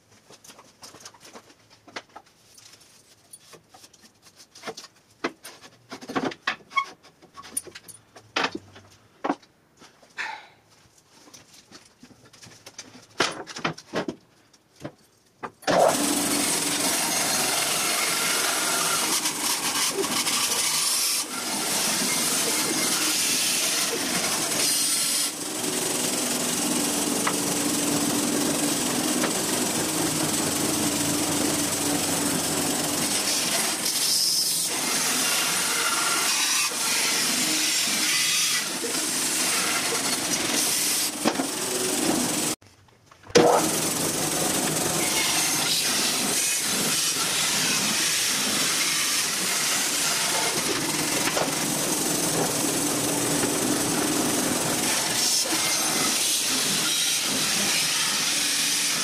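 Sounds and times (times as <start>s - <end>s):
bandsaw cutting log: 15.6s - 42.6s, 43.4s - 59.0s.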